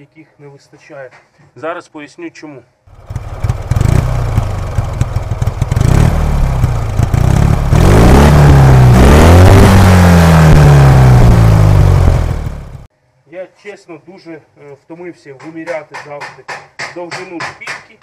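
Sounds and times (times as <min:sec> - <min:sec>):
motorcycle engine idling and revving: 0:02.9 - 0:12.9.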